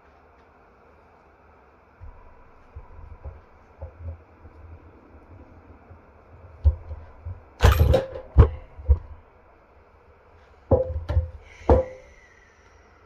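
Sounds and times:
hammer knocking on metal: 10.7 - 12.1.

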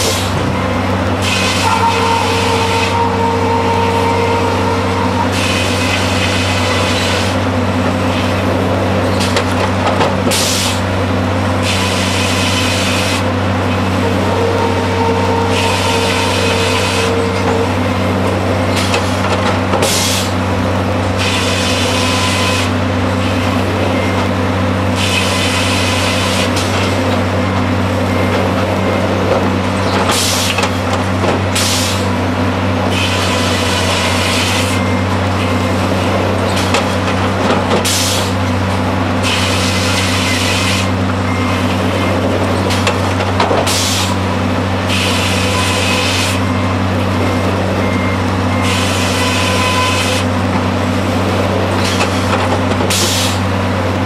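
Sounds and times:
low machinery drone: 0.0 - 54.0
steady whine: 0.0 - 54.0
saw hissing through log: 52.9 - 53.4.

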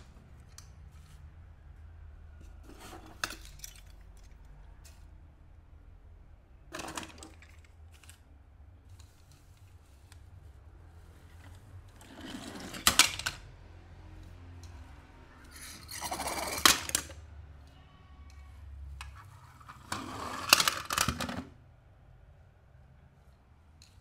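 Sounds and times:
toy cars rattling in a box: 6.7 - 8.2, 12.0 - 13.4, 15.5 - 17.2, 19.6 - 21.5.

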